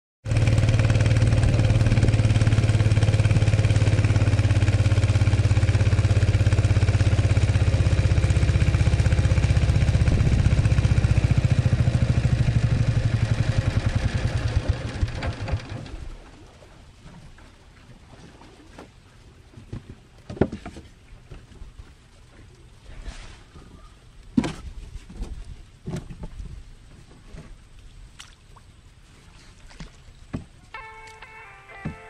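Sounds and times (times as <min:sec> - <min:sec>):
boat engine pulsing: 0:00.3 - 0:20.1.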